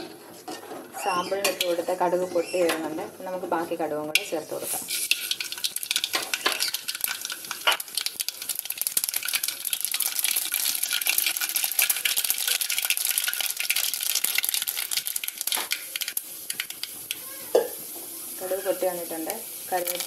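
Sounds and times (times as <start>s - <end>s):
seeds popping in hot oil: 4.1s - 20.0s.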